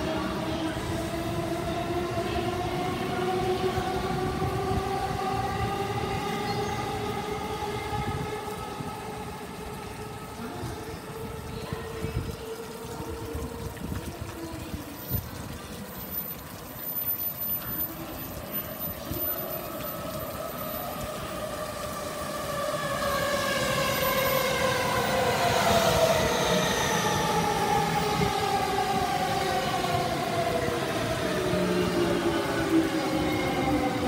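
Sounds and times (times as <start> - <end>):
electric train motors whining: 18.0 - 34.0.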